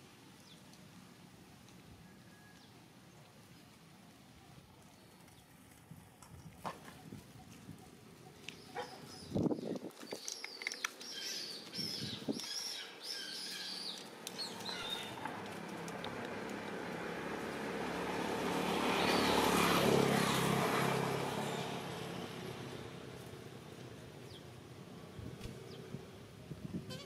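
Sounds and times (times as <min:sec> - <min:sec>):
vehicle passing: 0:14.1 - 0:26.4.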